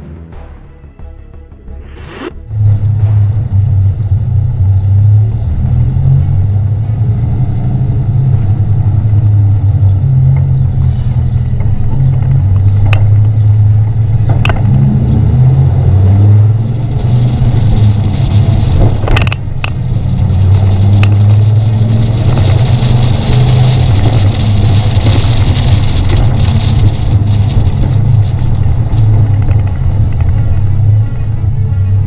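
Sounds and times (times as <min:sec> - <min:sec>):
truck engine droning: 0:00.0 - 0:32.0
tyre and wind noise: 0:01.8 - 0:32.0.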